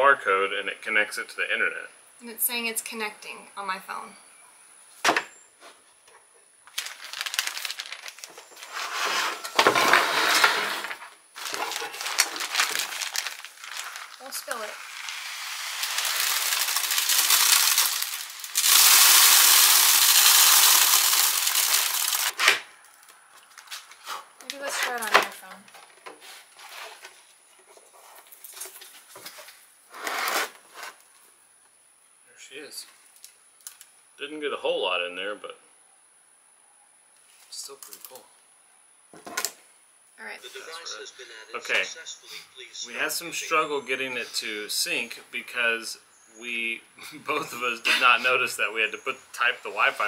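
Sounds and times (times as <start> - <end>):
plastic bag crinkling: 6.7 - 8.9, 11.4 - 22.4
seed feeder rustling: 6.7 - 22.4.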